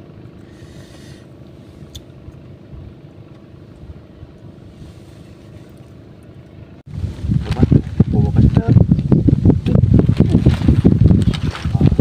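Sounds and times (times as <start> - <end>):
distant engine drone: 0.0 - 12.0.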